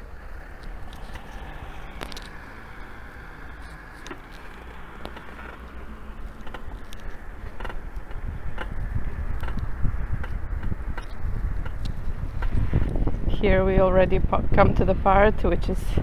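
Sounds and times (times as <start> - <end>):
tyres rumbling on street: 0.0 - 16.0
light clicks and rattles: 0.6 - 13.0
wind on microphone: 0.6 - 16.0.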